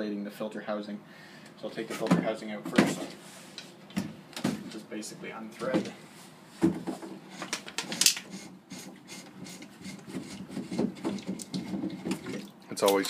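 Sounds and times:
plastic threads rubbing and scraping: 0:07.0 - 0:12.4.

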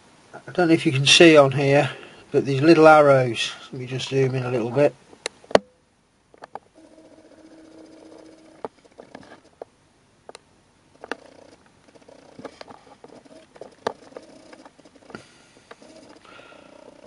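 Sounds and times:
camera zoom motor whir: 0:06.8 - 0:09.5, 0:11.0 - 0:17.0.

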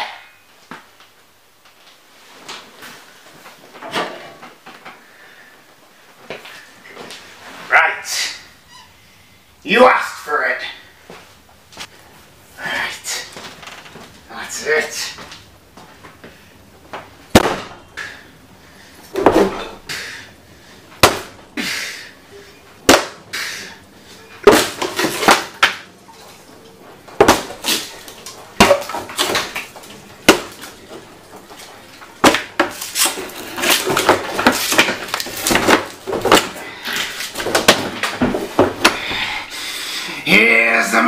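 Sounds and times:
axe chopping into wooden door: 0:17.3 - 0:17.8, 0:21.0 - 0:21.3, 0:24.4 - 0:25.8, 0:27.2 - 0:27.9, 0:28.6 - 0:30.6, 0:32.2 - 0:36.6, 0:37.4 - 0:39.0.

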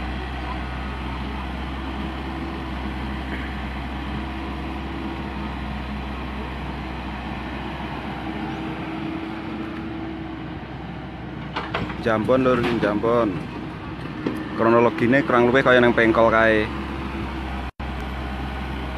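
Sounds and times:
diesel machinery engine drone: 0:00.0 - 0:18.9.

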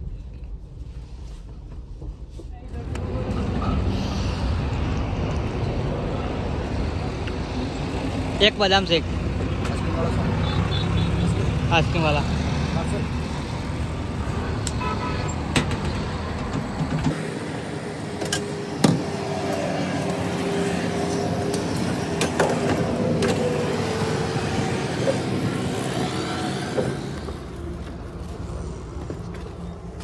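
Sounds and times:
car engine and road noise: 0:00.0 - 0:30.0.

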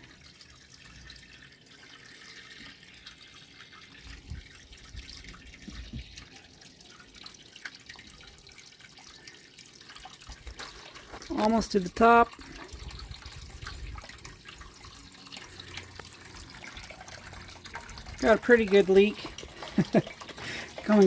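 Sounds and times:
faint water running: 0:00.0 - 0:21.0
water dripping and trickling: 0:00.0 - 0:21.0.

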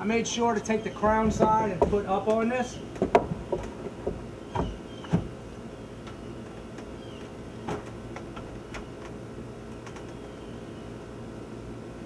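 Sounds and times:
wooden board knocking and clicking: 0:01.0 - 0:02.4, 0:03.0 - 0:05.3.

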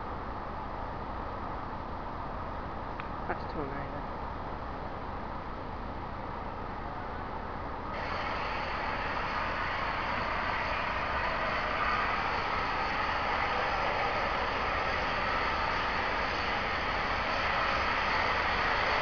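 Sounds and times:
steam locomotive rushing: 0:07.9 - 0:19.0.

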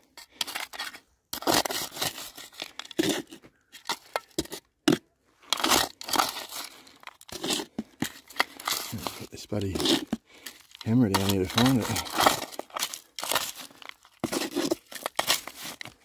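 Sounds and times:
gravel rattling in a scoop: 0:00.1 - 0:04.6, 0:05.4 - 0:16.0.

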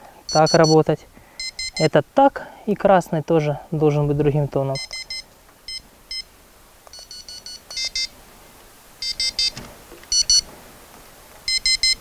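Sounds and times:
bite alarm beeps: 0:00.3 - 0:00.8, 0:01.4 - 0:02.0, 0:04.8 - 0:06.3, 0:06.9 - 0:08.1, 0:09.0 - 0:10.4, 0:11.5 - 0:12.0.

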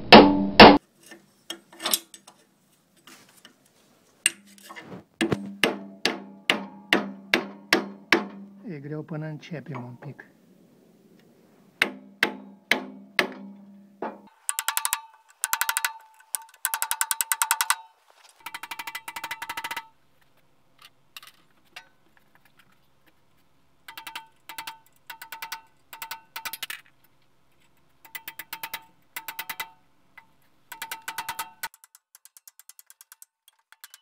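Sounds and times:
ratchet wrench clicking: 0:14.3 - 0:17.8, 0:23.9 - 0:26.9, 0:28.0 - 0:29.8.

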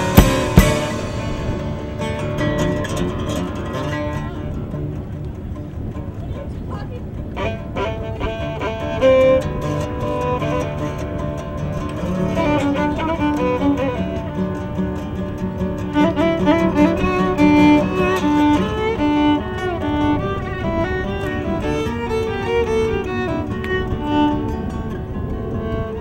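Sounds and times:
strummed acoustic guitar: 0:00.0 - 0:26.0
violin melody: 0:00.0 - 0:26.0.

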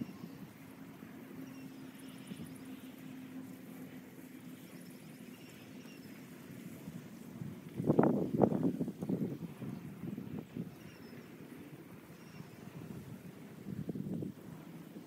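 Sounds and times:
low hum like distant engine: 0:00.0 - 0:15.0.

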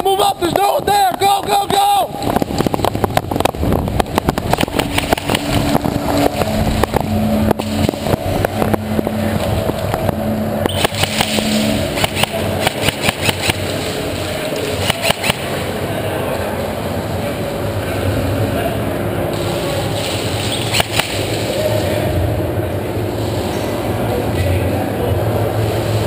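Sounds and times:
steady low hum: 0:00.0 - 0:26.0
running footsteps on concrete: 0:00.4 - 0:06.7.

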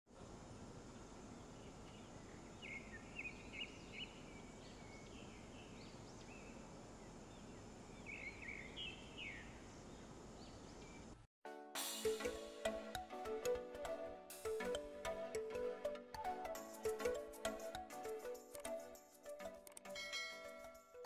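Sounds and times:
faint outdoor background noise: 0:00.1 - 0:11.3
bird chirping: 0:01.4 - 0:11.2.

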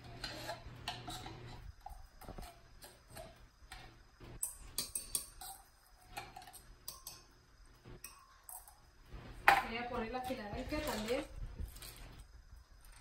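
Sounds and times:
spoon scraping tin can: 0:00.0 - 0:03.4.

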